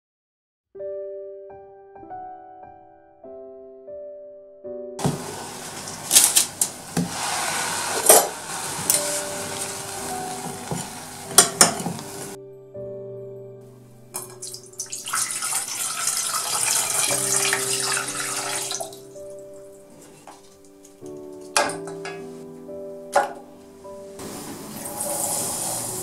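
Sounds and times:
background music: 0.8 - 26.0
water pouring into a pot: 5.0 - 12.4, 14.2 - 19.2, 24.7 - 26.0
syrup sloshing in a pot: 14.4 - 18.7.

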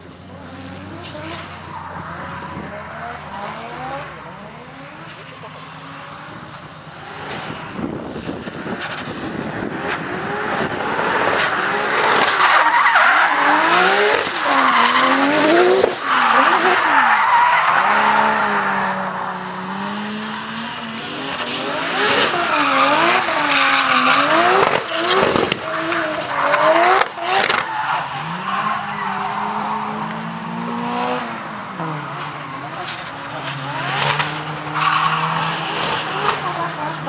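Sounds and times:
car engine revving: 0.0 - 37.0
tyres squealing: 12.2 - 29.9.

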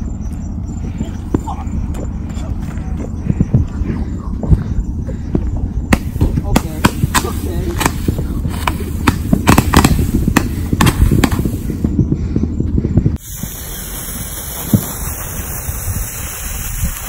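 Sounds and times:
low rumble: 0.0 - 13.6
firework sharp pops: 5.9 - 11.8, 13.2 - 17.0
fountain firework hissing: 13.2 - 17.0.

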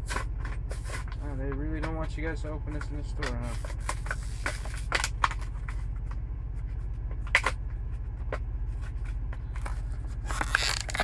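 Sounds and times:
steady low hum: 0.0 - 11.0
sharp plastic crack: 3.2 - 5.6, 9.6 - 11.0
plastic blister pack being pried open: 10.3 - 11.0.

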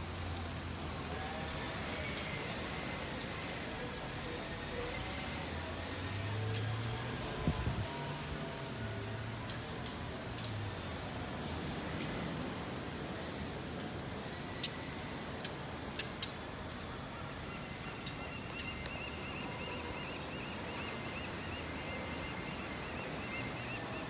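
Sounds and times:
wind: 0.0 - 24.0.

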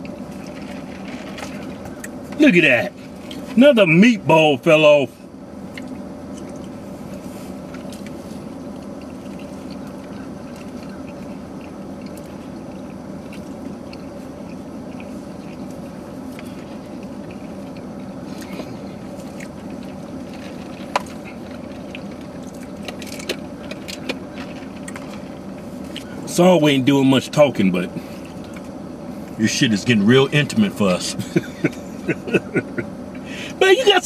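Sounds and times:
car cabin hum: 0.0 - 34.0.

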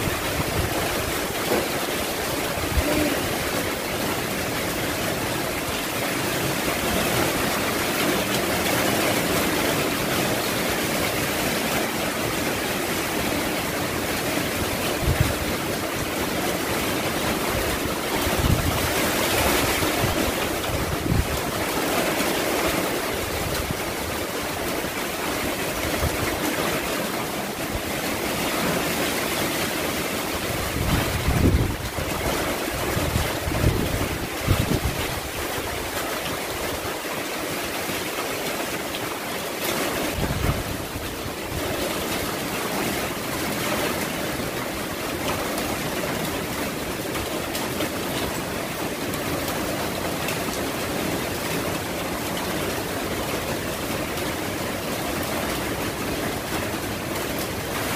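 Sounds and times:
wind gusts buffeting microphone: 0.0 - 11.8, 13.0 - 37.0, 39.8 - 42.5
strong wind: 0.0 - 54.1
driving rain: 0.0 - 57.9.

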